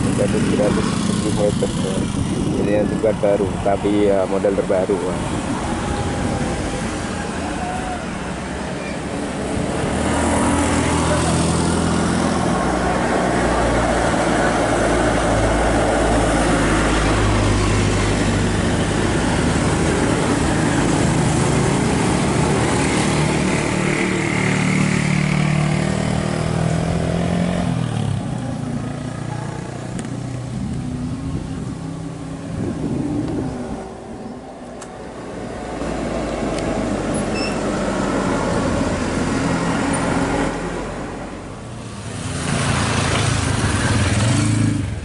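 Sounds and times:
scooter engine running: 0:00.0 - 0:03.0.

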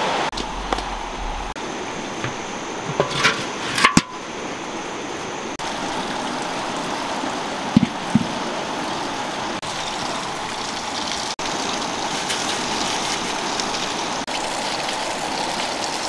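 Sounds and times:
river water rushing: 0:00.0 - 0:14.6
iron wok knocking: 0:02.2 - 0:04.3, 0:07.7 - 0:08.4.

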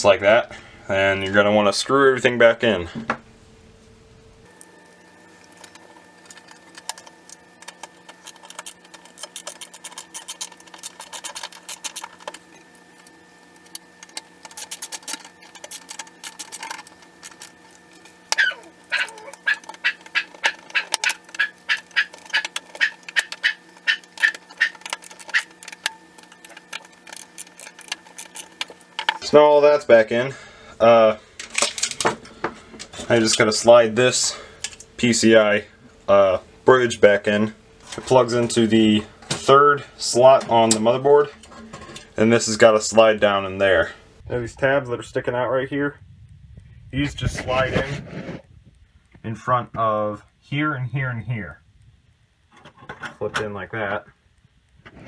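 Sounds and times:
faint hum: 0:00.0 - 0:55.0
screwdriver clicks and scrapes: 0:05.6 - 0:12.6.

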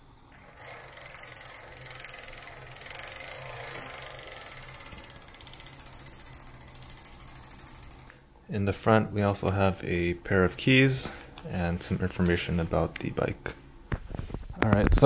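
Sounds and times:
freewheel ratchet clicking: 0:00.6 - 0:08.1.

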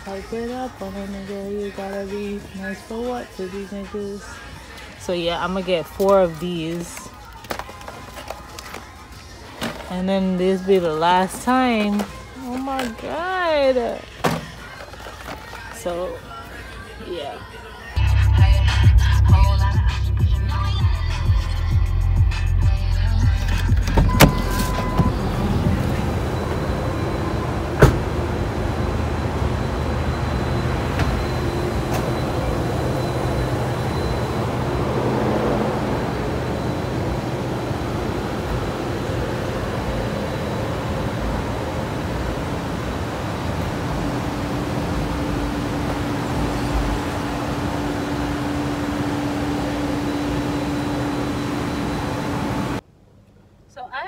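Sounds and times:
steady mechanical hum: 0:00.0 - 0:54.0
car engine running: 0:18.0 - 0:52.8.

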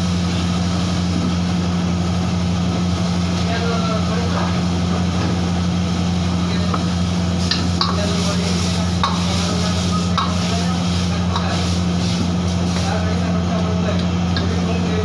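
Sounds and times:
gas burner roar: 0:00.0 - 0:15.0
sauce sizzling: 0:00.0 - 0:15.0
ladle scraping in a wok: 0:07.4 - 0:13.0.

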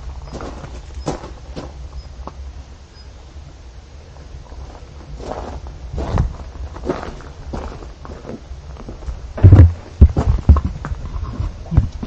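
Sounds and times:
steady low rumble: 0:00.0 - 0:12.0
footsteps: 0:04.5 - 0:12.0.

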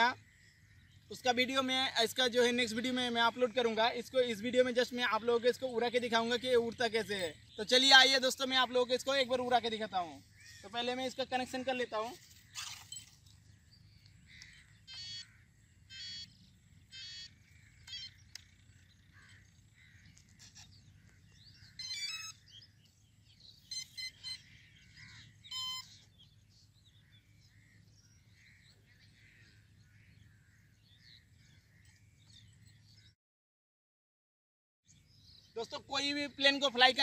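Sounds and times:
birds chirping faintly: 0:00.0 - 0:33.2, 0:34.9 - 0:37.0
short electronic beeps: 0:25.5 - 0:26.0.

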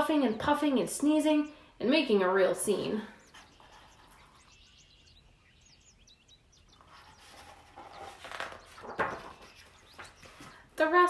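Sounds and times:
faint bird chirps: 0:02.7 - 0:10.8
book page rustle: 0:06.8 - 0:10.8.

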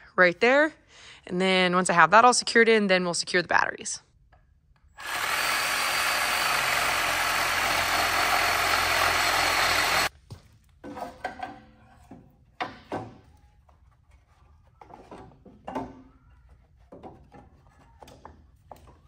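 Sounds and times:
reciprocating saw cutting wood: 0:05.0 - 0:10.1.

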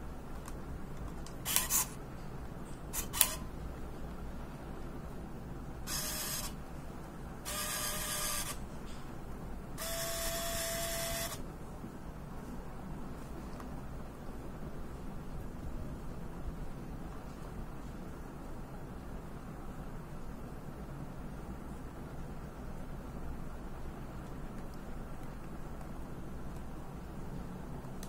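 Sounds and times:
zoom lens motor whirring: 0:01.4 - 0:02.0, 0:03.0 - 0:03.4, 0:05.9 - 0:06.6, 0:07.5 - 0:08.6, 0:09.8 - 0:11.4
camera shutter clicks: 0:01.5 - 0:02.0, 0:03.0 - 0:03.4.

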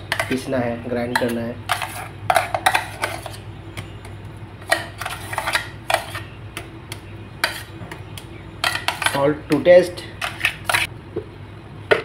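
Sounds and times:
spoon scraping batter from jar: 0:01.2 - 0:07.8.

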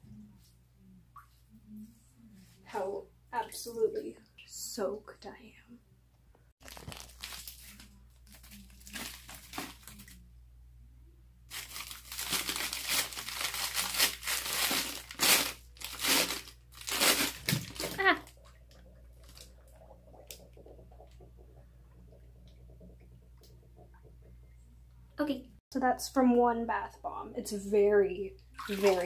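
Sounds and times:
bath bomb fizzing: 0:06.6 - 0:10.2, 0:11.5 - 0:24.6, 0:28.5 - 0:29.0.

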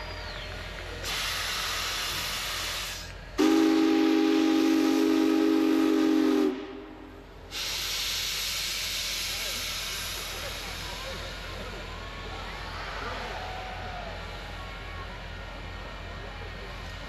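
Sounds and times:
steam venting hiss: 0:00.5 - 0:06.7, 0:07.4 - 0:12.0
deep steam whistle chord: 0:03.4 - 0:08.0.

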